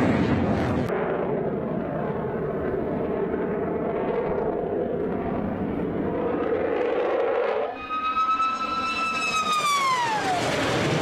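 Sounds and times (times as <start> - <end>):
jet engine rushing with whine: 0.0 - 11.0.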